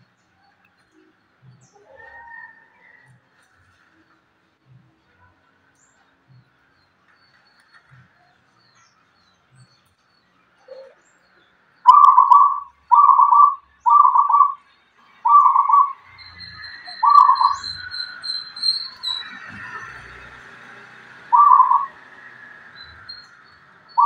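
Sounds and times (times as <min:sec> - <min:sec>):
dove cooing: 0:11.9 - 0:14.6, 0:15.3 - 0:16.0, 0:16.9 - 0:18.0, 0:21.2 - 0:22.1.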